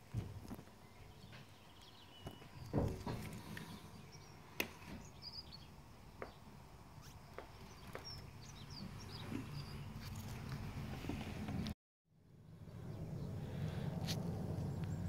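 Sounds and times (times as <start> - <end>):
high bird chirps: 5.0 - 6.4.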